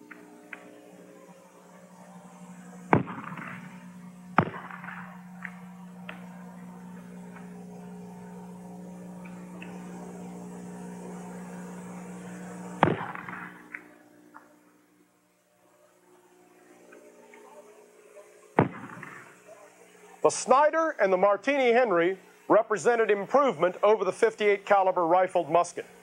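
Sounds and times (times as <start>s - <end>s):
steady low hum: 0.0s - 26.0s
rifle shots with echo: 2.9s - 3.8s, 4.4s - 5.2s, 12.8s - 13.6s, 18.6s - 19.2s.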